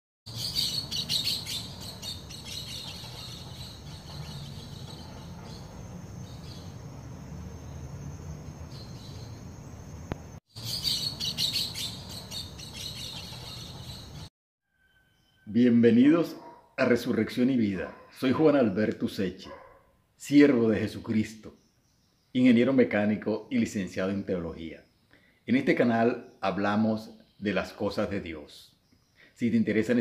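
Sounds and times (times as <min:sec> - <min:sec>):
birds chirping and calling: 0:00.3 - 0:07.0, 0:08.5 - 0:14.3
high insect drone: 0:03.1 - 0:10.4.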